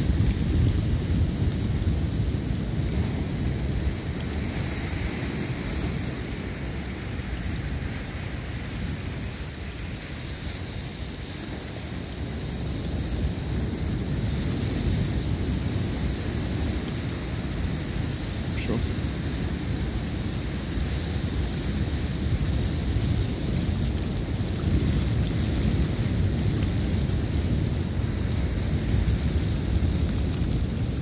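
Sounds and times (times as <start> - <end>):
wind rumbling on microphone: 0.0 - 31.0
ocean surf rushing: 13.4 - 26.2.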